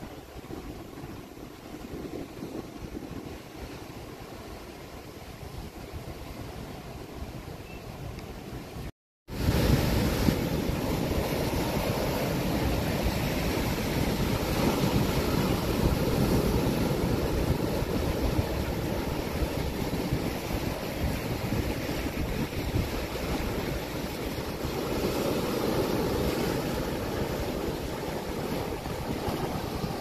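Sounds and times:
surf breaking over rocks: 9.3s - 30.0s.

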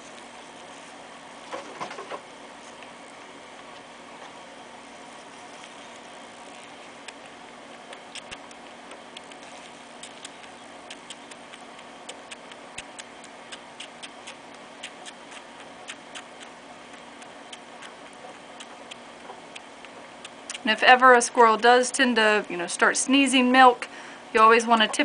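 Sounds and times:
steady low hum: 0.0s - 25.0s
squirrel suckling clicks: 5.0s - 20.8s.

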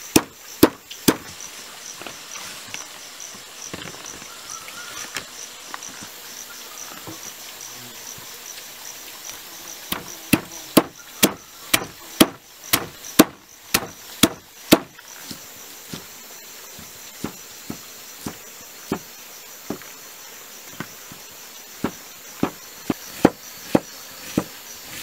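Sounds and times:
knife chopping on wooden block: 0.0s - 1.3s, 9.9s - 15.4s, 21.8s - 24.6s
insects chirping: 0.0s - 25.0s.

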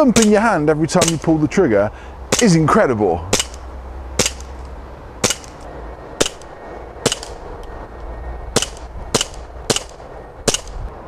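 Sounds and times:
air pistol shots cracking: 0.1s - 0.4s, 1.0s - 1.4s, 2.3s - 2.6s, 3.3s - 3.6s, 4.2s - 4.5s, 5.2s - 7.4s, 8.6s - 10.8s.

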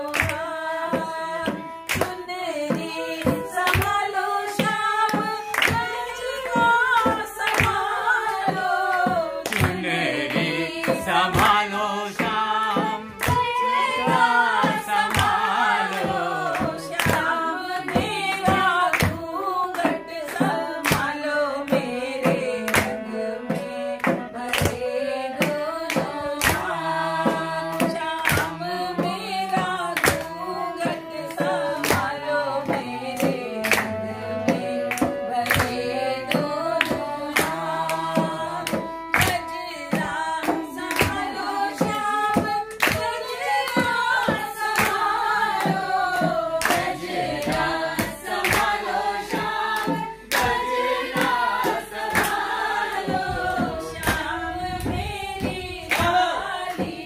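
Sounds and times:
hand drum steady beat: 0.0s - 57.0s
harmonium: 0.0s - 57.0s
women singing folk song: 0.0s - 57.0s.

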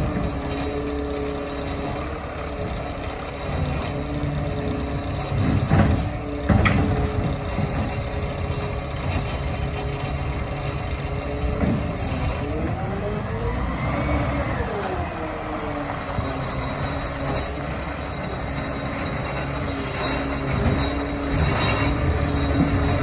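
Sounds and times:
garbage truck engine running: 0.0s - 23.0s
high brake squeal: 15.6s - 18.6s.

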